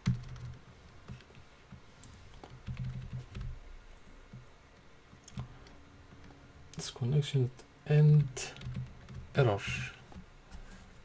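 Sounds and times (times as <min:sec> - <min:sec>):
keyboard typing: 0:00.0 - 0:03.6, 0:08.2 - 0:10.8.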